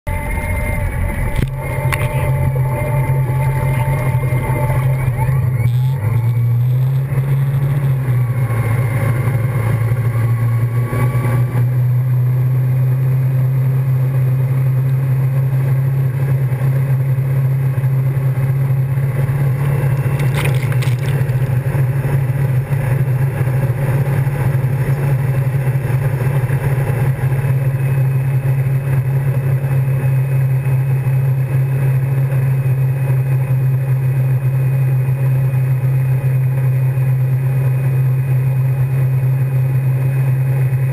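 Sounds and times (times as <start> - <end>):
boat engine droning: 0.0 - 40.9
rushing wake water: 19.0 - 27.3
water splashing over camera: 19.9 - 21.6.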